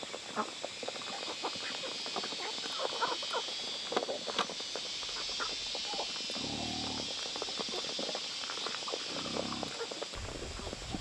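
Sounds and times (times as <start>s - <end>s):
low animal call: 5.1s - 7.2s, 9.1s - 11.0s.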